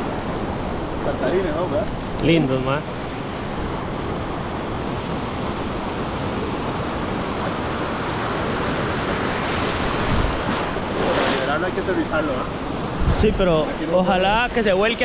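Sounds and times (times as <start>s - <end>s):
ocean waves breaking: 2.9s - 13.0s.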